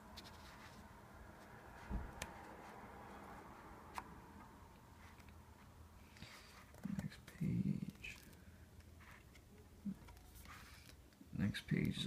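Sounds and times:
soft thump: 1.9 - 2.1.

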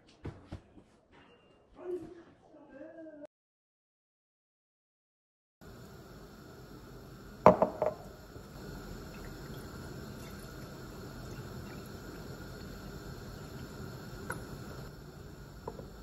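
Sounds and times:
glass knocking on countertop: 7.5 - 8.0, 15.6 - 15.9
juice pouring into glass: 7.5 - 15.9.

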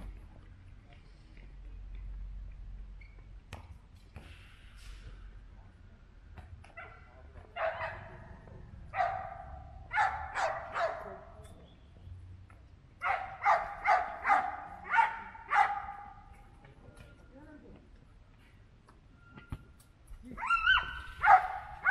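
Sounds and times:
dog barking: 6.8 - 8.3, 8.9 - 11.2, 13.0 - 16.2, 20.4 - 21.9.

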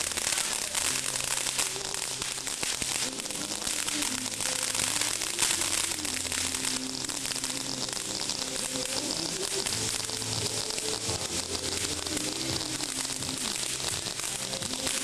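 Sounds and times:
fireworks hissing and crackling: 0.0 - 15.0.

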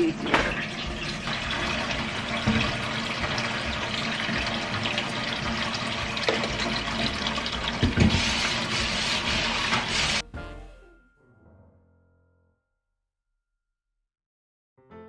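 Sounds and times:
faucet running into pan: 0.0 - 10.2.

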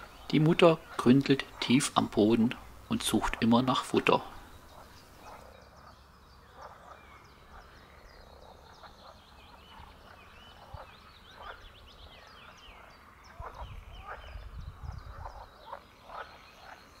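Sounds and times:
frogs croaking: 0.0 - 17.0.

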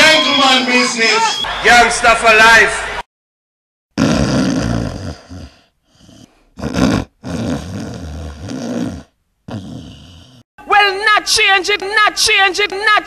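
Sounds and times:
person snoring: 4.0 - 10.5.

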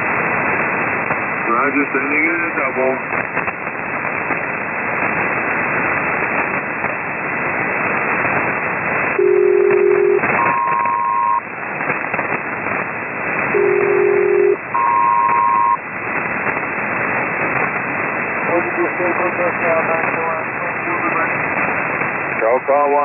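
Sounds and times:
radio static hiss and crackle: 0.0 - 23.0
two-tone radio chords: 9.2 - 11.4, 13.5 - 15.8.

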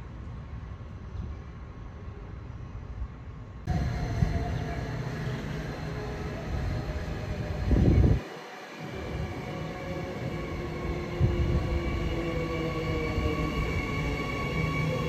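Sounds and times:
electric train motors whining: 3.7 - 15.0.

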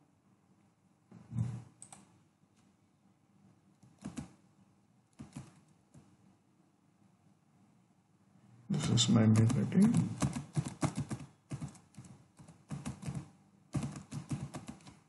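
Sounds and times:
keyboard keystrokes: 3.8 - 4.4, 5.2 - 5.7, 9.0 - 15.0.

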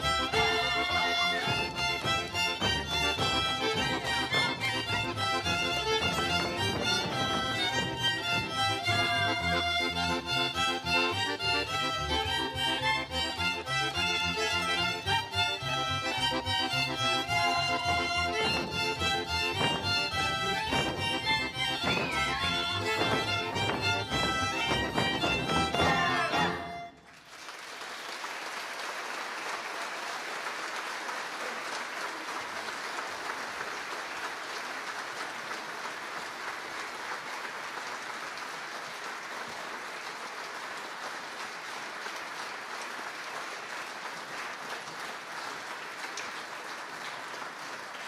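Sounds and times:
folk band with fiddles: 0.0 - 27.0
audience applauding: 16.2 - 48.0.

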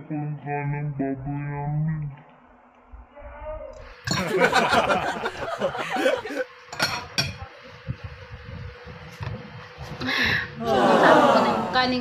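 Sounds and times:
cutlery clinking on ceramic plate: 6.8 - 7.4
woman's voice: 10.7 - 12.0.

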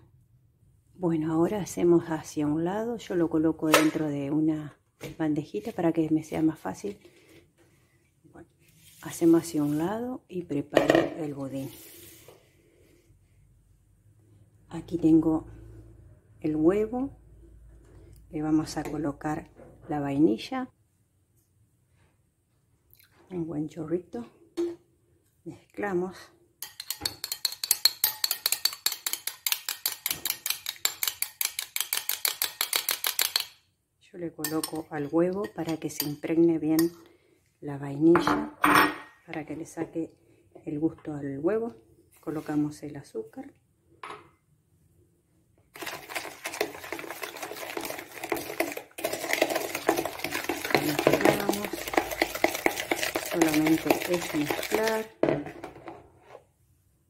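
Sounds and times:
spoon beating eggs in bowl: 26.6 - 33.6, 45.8 - 55.8
spoon clinking in glass bowl: 26.6 - 33.6.

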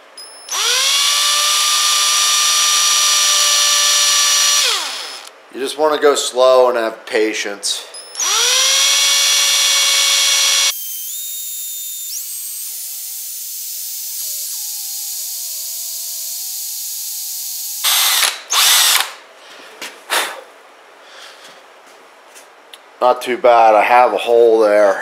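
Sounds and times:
power drill whining: 0.2 - 5.3, 8.1 - 19.2.

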